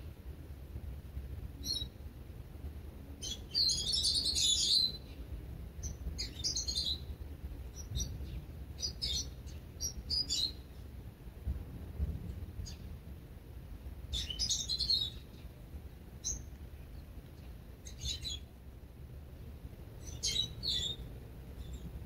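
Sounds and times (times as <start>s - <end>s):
low steady rumble: 0.0s - 22.0s
small songbirds chirping: 1.5s - 2.1s, 3.2s - 11.0s, 12.5s - 13.0s, 14.0s - 18.7s, 19.5s - 22.0s.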